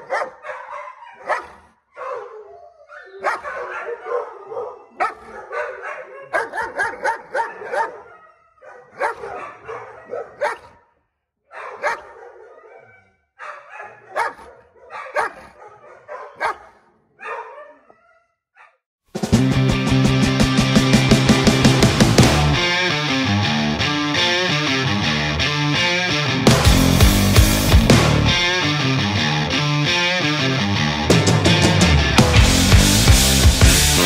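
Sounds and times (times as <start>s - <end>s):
dog barking aggressively: 0.0s - 2.4s, 3.2s - 10.8s, 11.5s - 18.8s.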